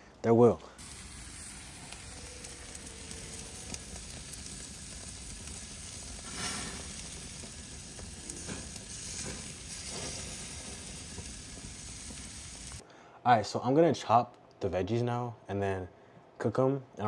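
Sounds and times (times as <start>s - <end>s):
steaks sizzling on a grill: 0.8s - 12.8s.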